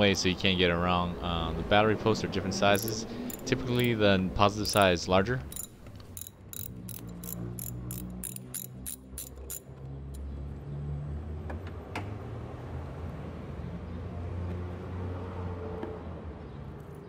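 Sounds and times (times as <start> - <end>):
socket ratchet clicking: 2.7 - 4.0, 4.6 - 9.7.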